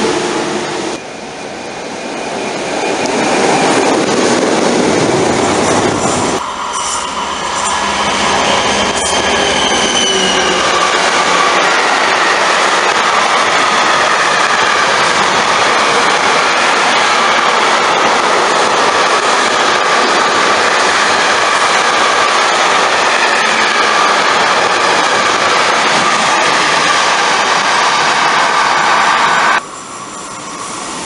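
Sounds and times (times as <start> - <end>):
train wheels rolling on rails: 0.0 - 31.0
high wheel squeal: 5.6 - 18.0.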